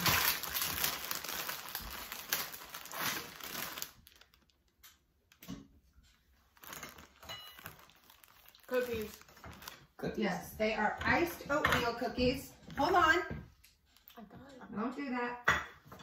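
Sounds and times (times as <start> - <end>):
plastic bag crinkling: 0.0 - 5.4, 6.3 - 10.1.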